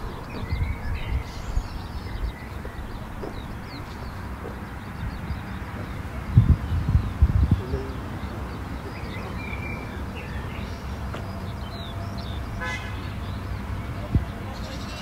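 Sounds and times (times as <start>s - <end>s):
birds chirping: 0.0s - 15.0s
vehicle engine rumbling: 0.0s - 15.0s
horn toot: 12.6s - 13.2s.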